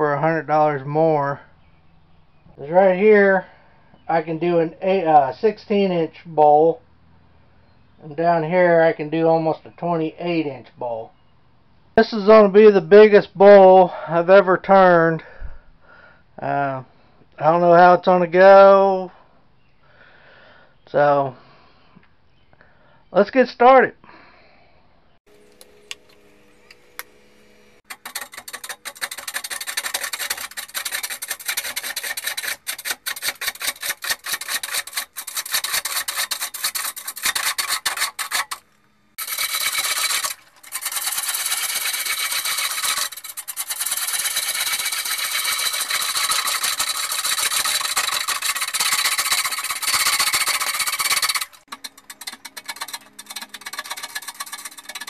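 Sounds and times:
lathe tool scraping wood: 25.2s - 55.0s
lathe motor hum: 25.3s - 55.0s.

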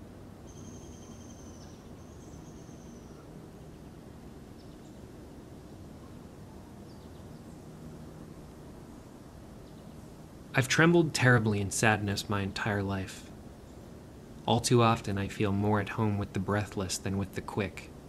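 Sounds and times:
bird whistling and chirping: 0.5s - 3.3s
steady low rumble: 8.2s - 18.0s.

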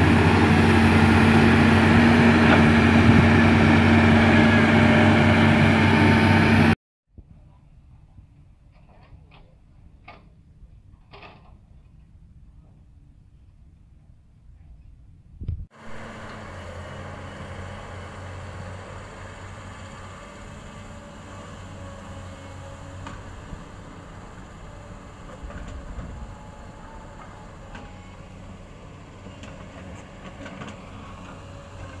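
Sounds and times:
excavator diesel engine: 0.0s - 6.8s, 15.8s - 32.0s.

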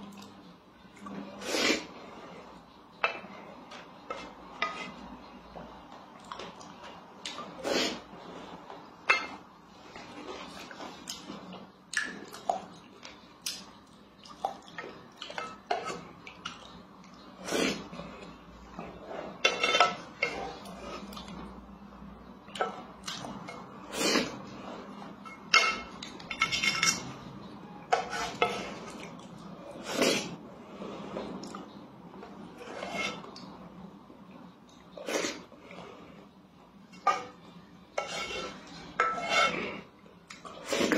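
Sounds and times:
spoon scraping metal pot: 1.4s - 5.1s, 17.4s - 21.2s, 23.4s - 29.0s, 32.5s - 33.5s, 36.9s - 40.9s.

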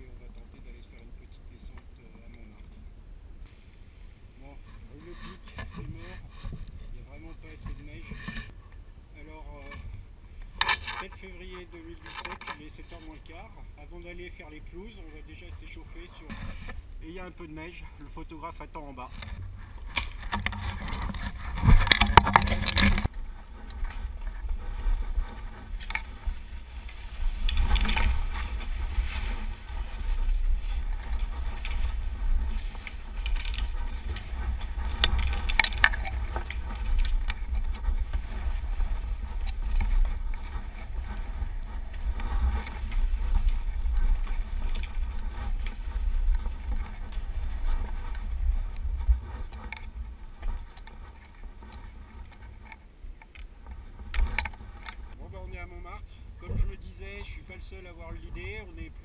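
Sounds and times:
wind rumble on microphone: 0.0s - 59.0s
skis scraping over snow: 11.0s - 52.6s.

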